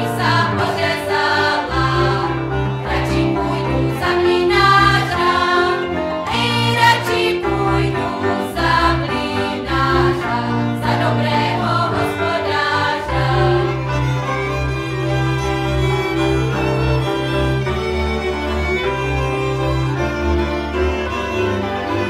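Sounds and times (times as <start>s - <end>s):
group of voices singing: 0.0s - 14.1s
instrumental accompaniment: 0.0s - 22.0s.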